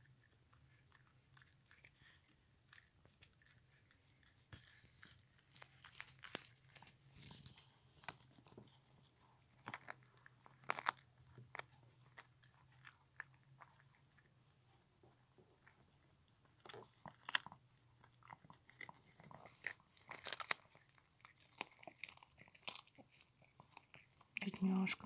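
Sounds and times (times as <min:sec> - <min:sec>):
dog chewing dry treat: 0:16.6 - 0:25.0.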